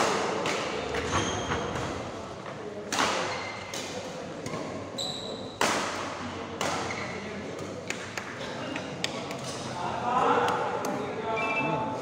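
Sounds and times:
rackets hitting shuttlecock: 2.9 - 4.7, 5.5 - 8.3
shoes squeaking on court floor: 4.9 - 5.6.

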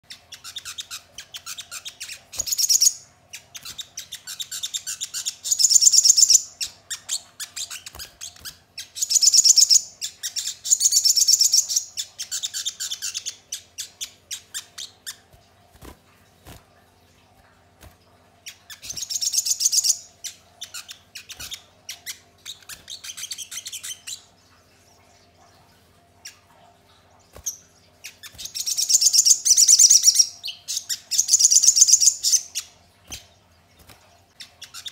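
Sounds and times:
sunbird singing chips and trills: 0.1 - 15.2, 18.5 - 24.3, 27.4 - 33.3.

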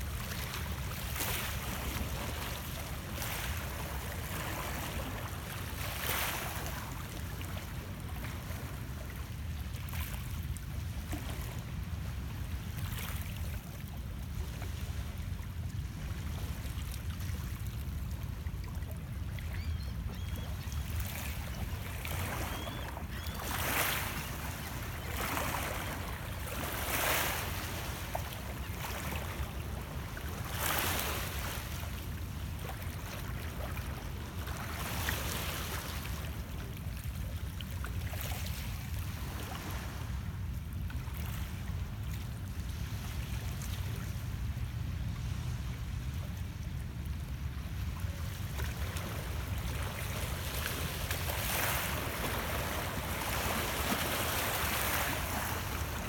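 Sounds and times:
waves lapping against rocks: 48.0 - 56.0.

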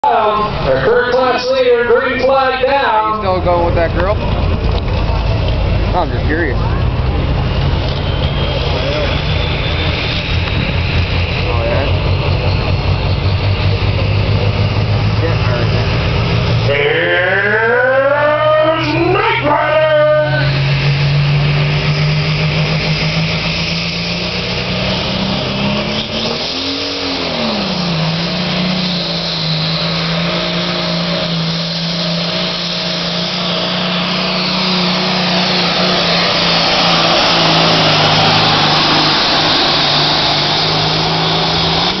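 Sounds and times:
diesel tractor engine roaring: 0.0 - 42.0.

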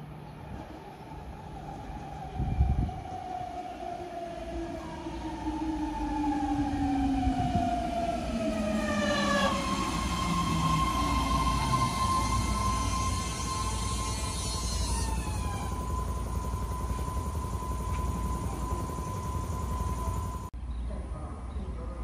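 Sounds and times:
train propulsion whine: 0.0 - 20.5
train rumble: 0.0 - 20.5
steady high whine: 9.5 - 20.5.

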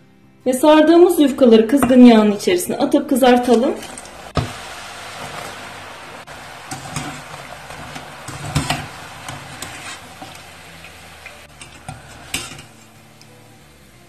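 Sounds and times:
pastries sizzling in hot oil: 1.8 - 14.0
skimmer scraping against pot: 3.4 - 13.1.

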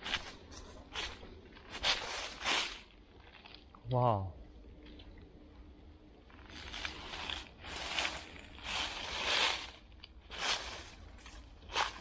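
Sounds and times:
brushing against undergrowth: 0.0 - 3.0, 6.5 - 12.0
footsteps crunching dry leaves: 0.0 - 3.0, 6.5 - 12.0.

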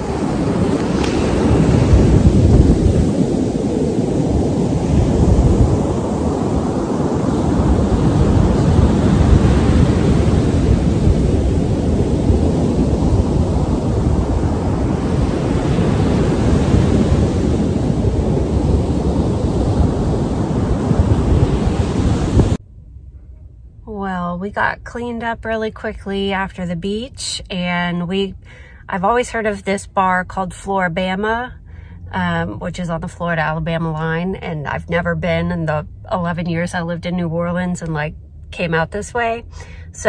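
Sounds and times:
ocean surf on beach: 0.0 - 22.6
wind rumbling on microphone: 0.0 - 22.6.

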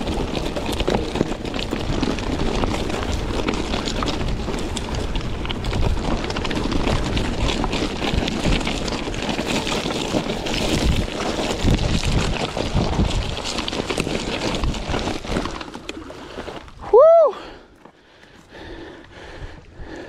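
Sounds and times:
wind buffeting microphone: 0.0 - 15.5
bike riding over gravel: 0.0 - 20.0.

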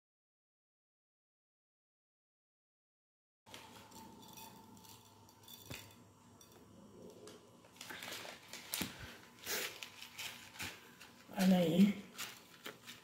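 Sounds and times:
faint handling noises: 3.5 - 13.0.

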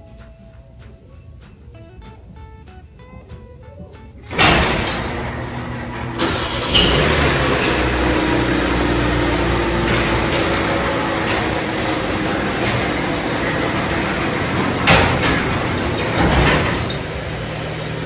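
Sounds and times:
car engine running: 4.3 - 18.0
garage door opener running: 4.3 - 18.0.

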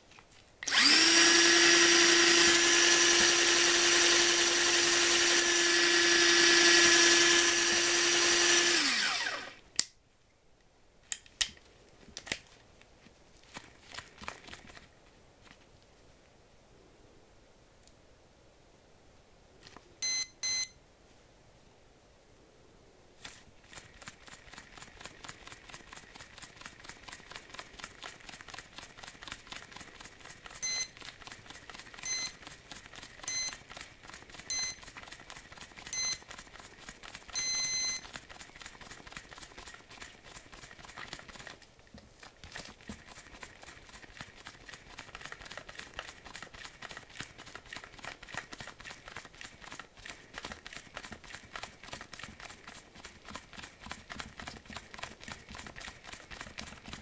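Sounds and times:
fishing reel spool ticking: 0.6 - 9.6
electronic beeps: 20.0 - 20.7, 30.6 - 30.9, 32.1 - 32.3, 34.5 - 34.8, 36.0 - 36.2, 37.4 - 38.0.

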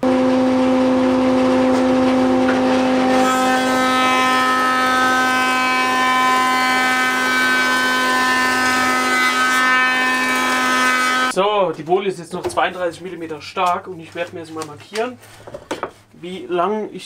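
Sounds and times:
thickness planer humming: 0.0 - 11.3.

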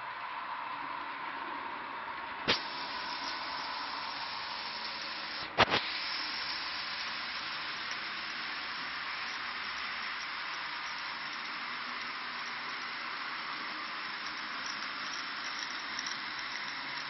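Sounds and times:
model trains whirring: 0.0 - 17.0.

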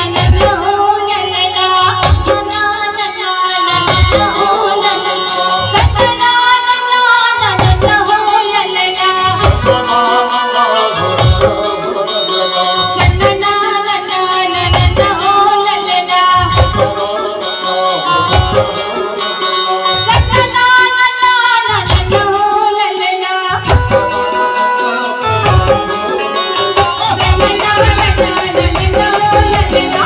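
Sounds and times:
folk song through loudspeakers: 0.0 - 30.0
deep drum beat: 11.1 - 12.0, 16.4 - 17.2, 25.5 - 30.0.

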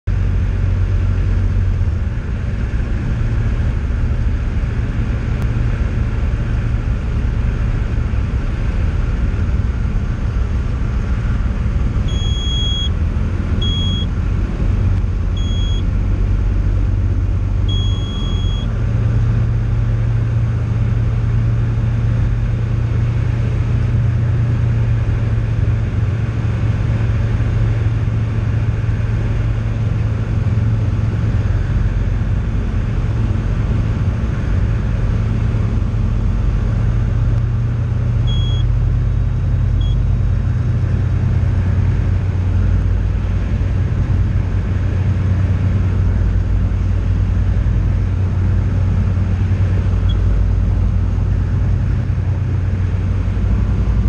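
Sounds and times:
aircraft engine and propeller drone: 0.1 - 54.0
short high beeps: 12.1 - 13.0, 13.6 - 14.1, 15.4 - 15.8, 17.7 - 18.7, 38.3 - 38.7, 39.8 - 40.0.

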